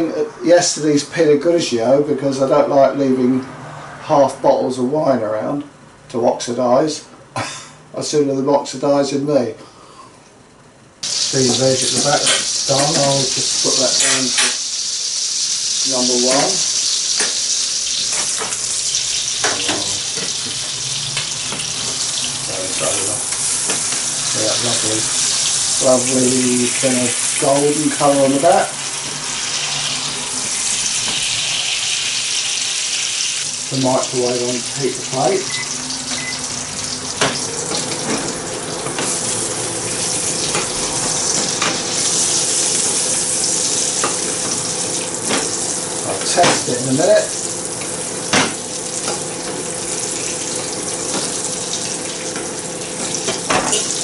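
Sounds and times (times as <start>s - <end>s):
fish frying in butter: 11.0s - 54.0s
microwave oven hum: 15.8s - 54.0s.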